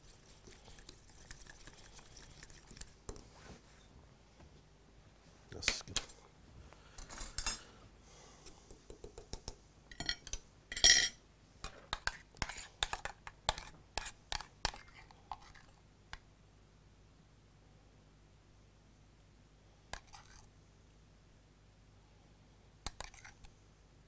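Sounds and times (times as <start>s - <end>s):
metal utensils clinking on pans and plates: 9.9s - 11.2s.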